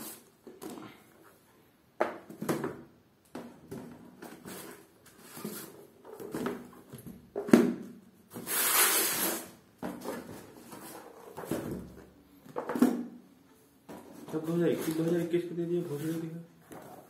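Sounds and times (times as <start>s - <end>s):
books tapping on concrete floor: 2.0s - 4.4s, 5.4s - 8.0s, 9.8s - 13.2s.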